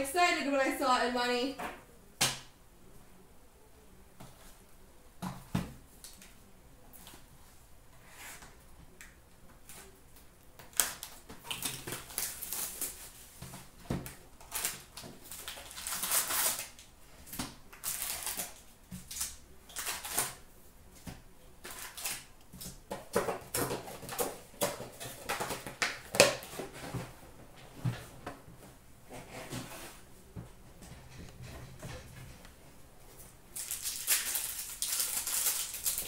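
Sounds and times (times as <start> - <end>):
cards and wrappers rustling: 10.7 - 16.8, 17.7 - 20.4, 33.5 - 36.0.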